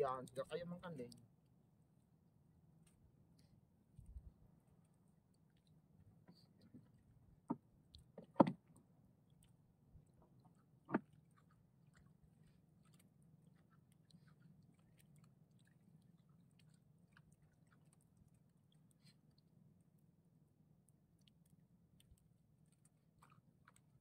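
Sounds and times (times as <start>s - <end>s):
faint low hum: 0.0s - 24.0s
sharp knocks in a boat: 7.4s - 8.6s, 10.9s - 11.1s.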